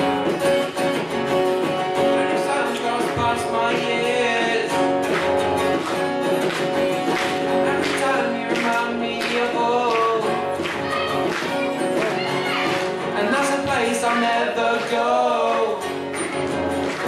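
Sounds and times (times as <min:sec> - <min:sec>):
acoustic guitars strummed: 0:00.0 - 0:17.0
young man singing: 0:01.8 - 0:05.2, 0:07.3 - 0:16.1.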